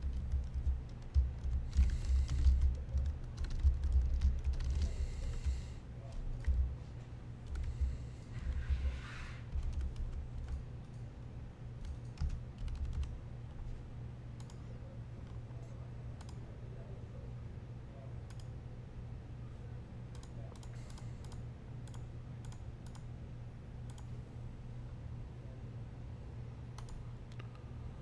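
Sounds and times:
keyboard keystrokes: 0:00.0 - 0:05.5, 0:11.8 - 0:13.2
steady low hum: 0:00.0 - 0:28.0.

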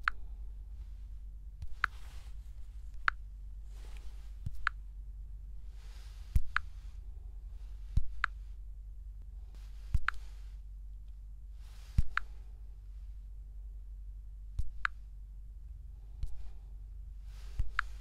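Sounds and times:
low steady hum: 0:00.0 - 0:18.0
fingertip tapping touchscreen: 0:01.6 - 0:04.8, 0:06.3 - 0:06.9, 0:07.9 - 0:08.5, 0:09.8 - 0:10.4, 0:11.9 - 0:12.4, 0:17.5 - 0:18.0.

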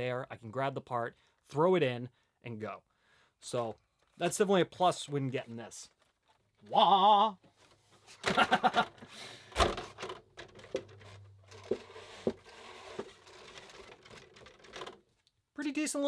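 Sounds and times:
plastic shell rustling and clattering: 0:07.4 - 0:15.3.

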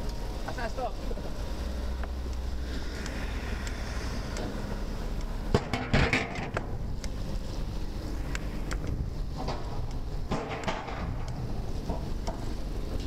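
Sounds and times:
bicycle rolling on pavement: 0:00.0 - 0:13.0
wind on microphone: 0:01.0 - 0:13.0
wheels rattling over metal grate: 0:05.5 - 0:06.6, 0:09.3 - 0:13.0.

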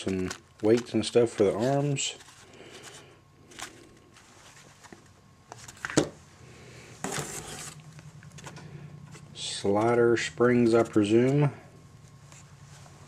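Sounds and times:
packaging rustling: 0:00.0 - 0:06.0
faint steady hum: 0:00.0 - 0:13.0.

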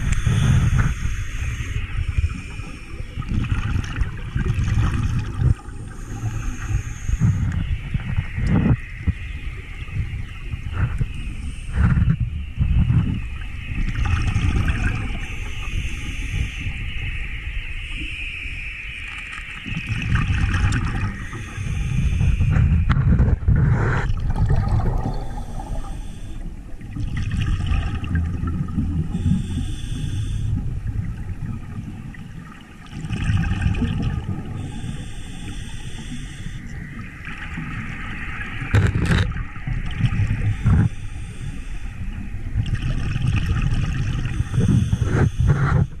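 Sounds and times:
exhaled bubbles gurgling: 0:00.0 - 0:46.0
diver breathing through regulator: 0:21.0 - 0:24.2, 0:24.8 - 0:26.6, 0:29.1 - 0:30.6, 0:34.4 - 0:36.8, 0:40.1 - 0:42.3, 0:44.1 - 0:46.0.

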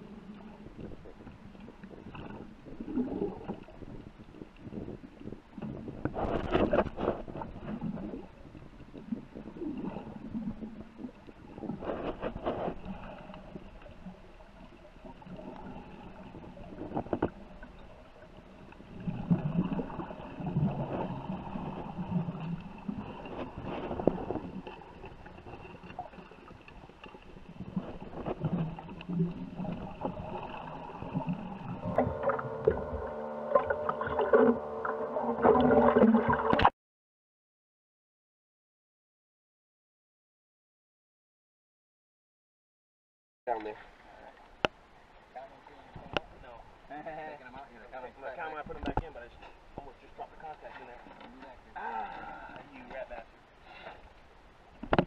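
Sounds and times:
water churning and bubbling underwater: 0:00.0 - 0:36.7, 0:43.5 - 0:55.0
steady pitched hum: 0:27.6 - 0:36.7
faint high whine: 0:29.8 - 0:36.6.

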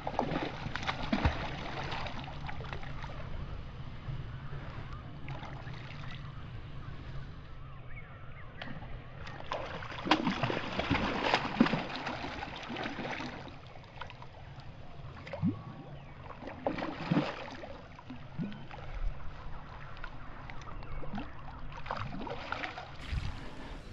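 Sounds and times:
water splashing and sloshing: 0:00.0 - 0:07.3, 0:08.5 - 0:23.9
steady low rumble: 0:00.0 - 0:09.2, 0:23.0 - 0:23.9.

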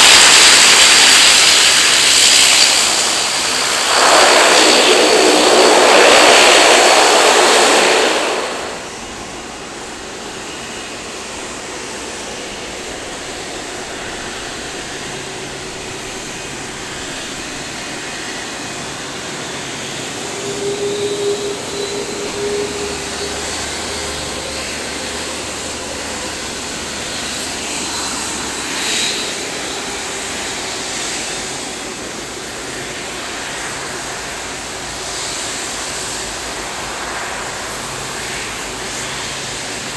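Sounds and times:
rush of engine noise: 0:00.0 - 0:27.9
jet engines taxiing with whine: 0:00.0 - 0:39.9.

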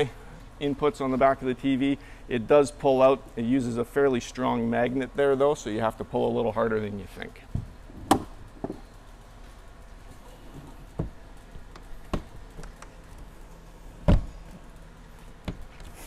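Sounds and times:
knocks and clunks: 0:14.0 - 0:14.4.

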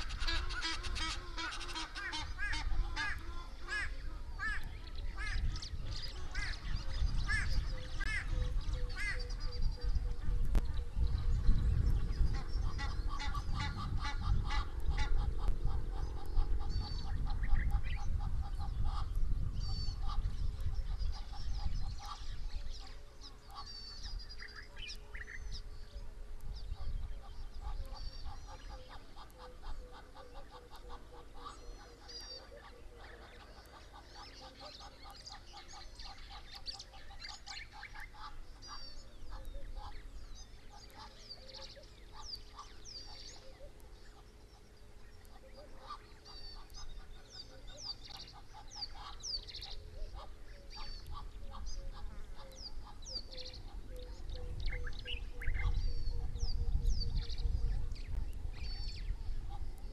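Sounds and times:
birds chirping and whistling: 0:00.0 - 0:59.9
rapid repeated bird calls: 0:00.0 - 0:59.9.

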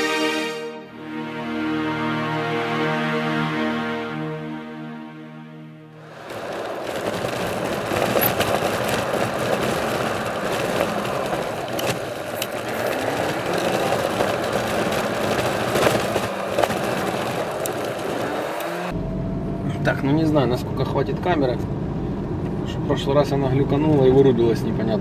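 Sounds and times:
road and tyre noise: 0:00.9 - 0:25.0
car engine running: 0:06.0 - 0:22.8.

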